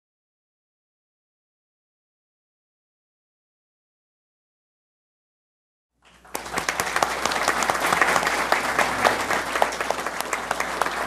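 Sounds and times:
applause: 6.0s - 11.0s.

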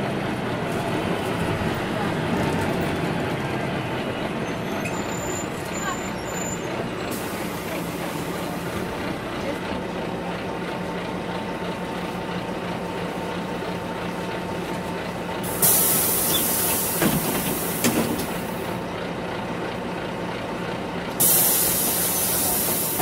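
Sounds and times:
bus engine and road drone: 0.0s - 23.0s
compressed air hiss: 15.5s - 17.9s, 21.2s - 23.0s.

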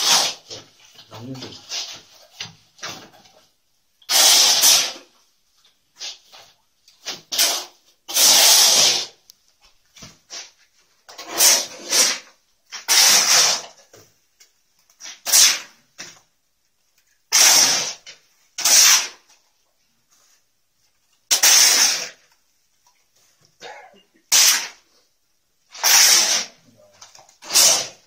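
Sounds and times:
brooms sweeping wet mortar: 0.0s - 3.4s, 5.9s - 9.2s, 10.0s - 13.9s, 14.9s - 15.9s, 17.3s - 20.5s, 21.2s - 22.3s, 24.2s - 25.1s, 25.7s - 28.0s.

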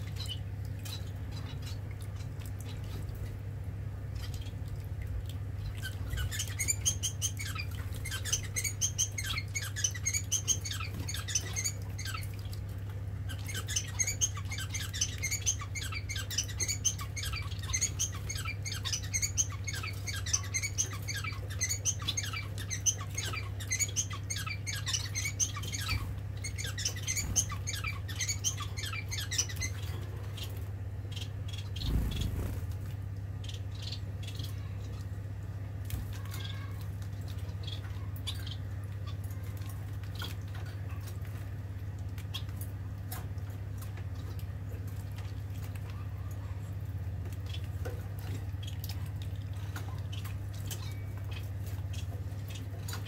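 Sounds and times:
water fountain pump hum: 0.0s - 53.0s
finches chirping: 5.6s - 12.3s, 13.2s - 32.8s, 33.4s - 34.9s, 36.2s - 39.4s.

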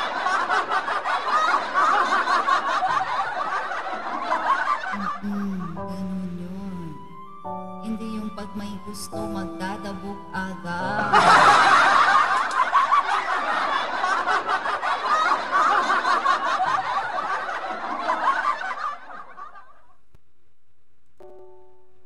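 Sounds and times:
canned laughter: 0.0s - 5.9s, 11.0s - 19.7s.

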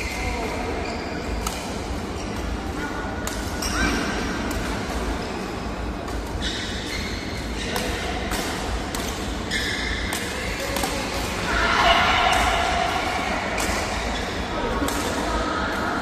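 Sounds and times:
sneakers squeaking on court floor: 0.0s - 11.0s
rackets striking shuttlecock: 1.3s - 5.4s, 6.0s - 15.3s.

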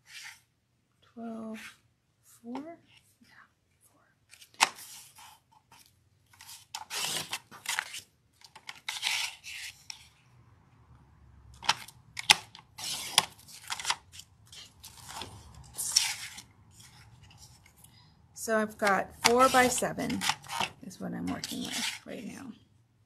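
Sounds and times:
paper rustling: 4.3s - 10.2s, 11.6s - 17.9s, 18.8s - 22.4s
paper trimmer blade rasping: 19.2s - 20.8s.

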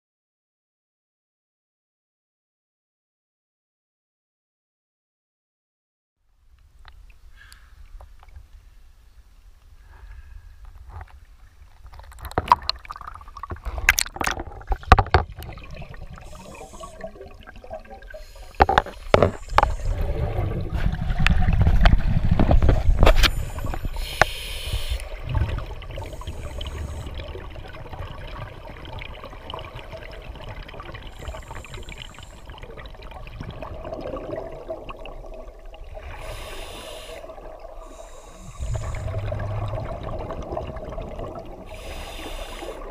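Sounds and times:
water sloshing and gurgling: 10.6s - 42.9s
hissing regulator bubbles: 12.5s - 21.9s, 22.6s - 42.9s
low rumble: 38.4s - 41.4s.

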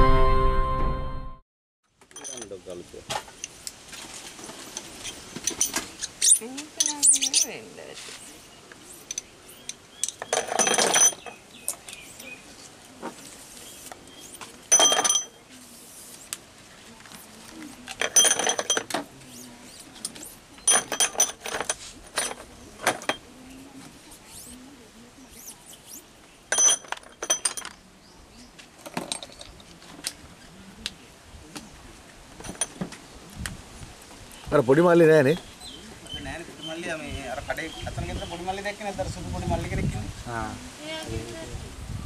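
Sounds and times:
glass vials clinking and rattling: 2.2s - 2.5s, 5.0s - 7.6s, 9.0s - 11.4s, 14.7s - 15.3s, 18.0s - 19.0s, 20.6s - 23.2s, 26.5s - 27.8s, 28.9s - 29.7s.

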